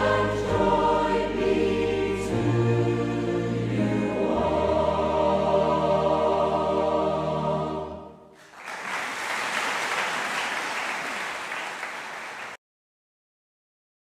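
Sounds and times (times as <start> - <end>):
choir singing chord: 0.0 - 8.4
audience applauding: 8.4 - 12.6.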